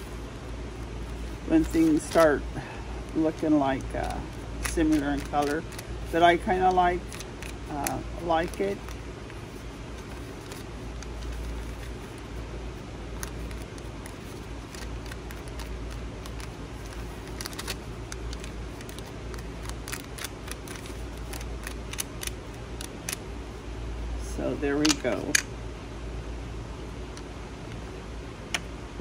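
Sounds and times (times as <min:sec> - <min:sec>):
paper rustling: 0:00.0 - 0:02.4, 0:03.1 - 0:12.4, 0:13.2 - 0:23.2
low steady hum: 0:00.0 - 0:29.0.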